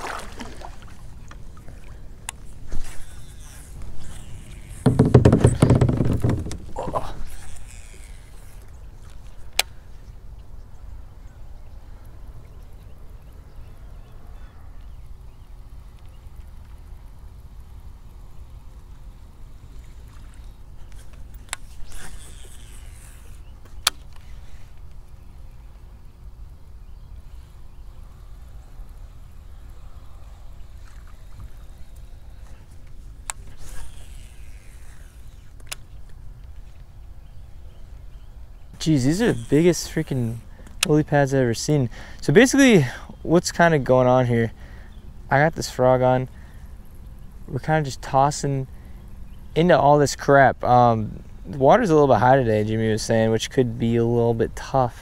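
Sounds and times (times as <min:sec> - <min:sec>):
low rumble of water: 0:00.0 - 0:02.7
reel spool whirring: 0:00.0 - 0:10.1, 0:15.1 - 0:41.7
handling noise: 0:02.4 - 0:09.4
faint bird calls: 0:06.7 - 0:16.3
fishing reel click: 0:20.9 - 0:24.8, 0:33.2 - 0:36.6, 0:39.1 - 0:41.0.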